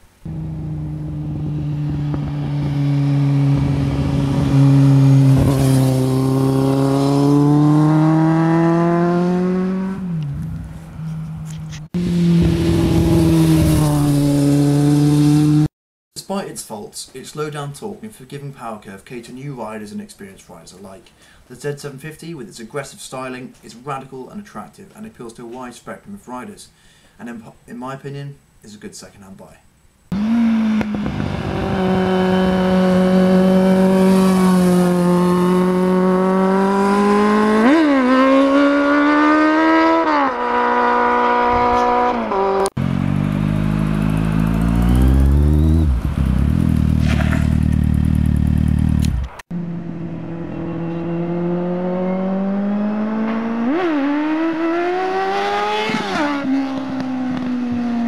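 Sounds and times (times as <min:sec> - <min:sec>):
motorcycle engine accelerating: 0:00.2 - 0:15.7, 0:30.1 - 0:58.0.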